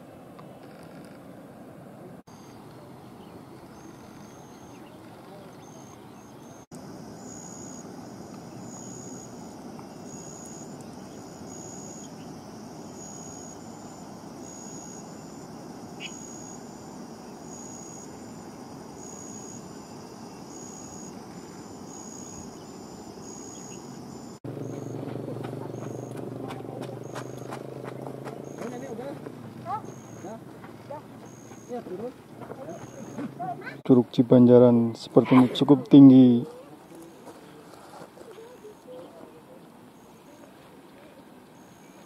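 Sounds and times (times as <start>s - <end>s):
chirping insect call: 2.3s - 35.0s, 38.3s - 42.0s.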